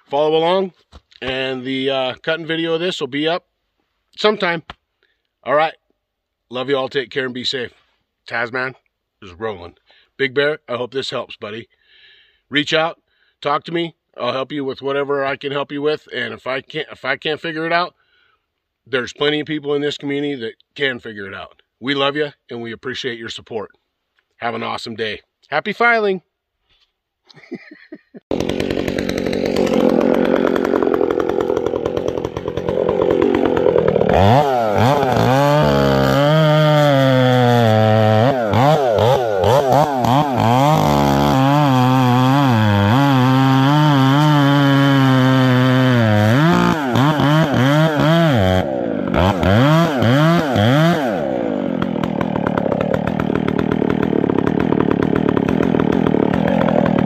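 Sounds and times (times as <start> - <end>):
chainsaw cutting wood: 28.3 - 57.0.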